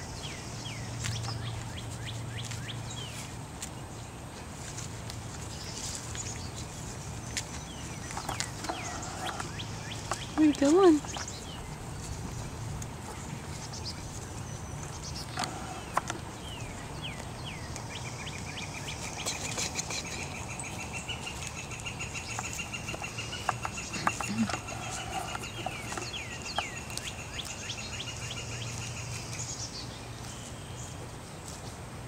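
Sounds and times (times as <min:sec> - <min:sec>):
high bird trill: 0:07.8 - 0:12.1, 0:13.5 - 0:29.7.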